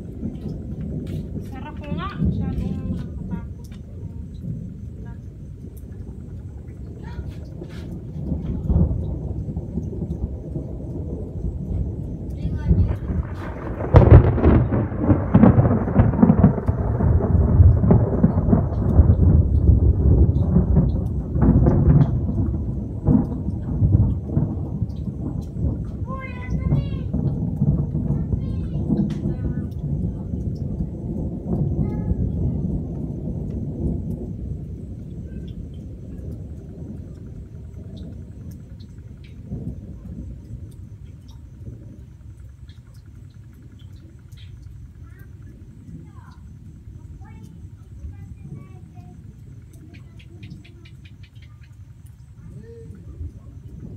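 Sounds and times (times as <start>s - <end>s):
thunder crack and rumble: 0.0s - 53.9s.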